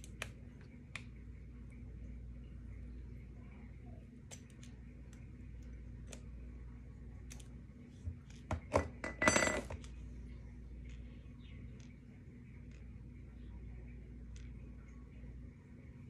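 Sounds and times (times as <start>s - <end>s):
small clicks: 14.3s - 14.7s.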